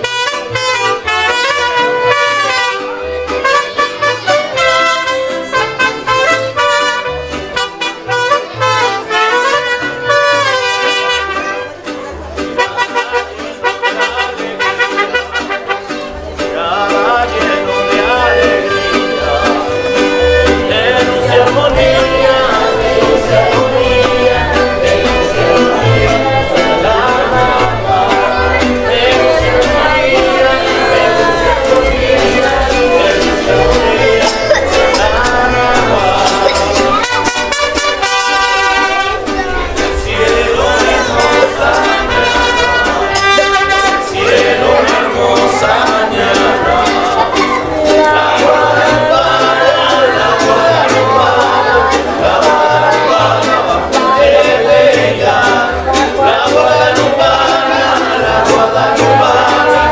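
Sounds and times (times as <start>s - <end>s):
mariachi band playing: 0.0s - 59.9s
person singing: 12.6s - 59.9s.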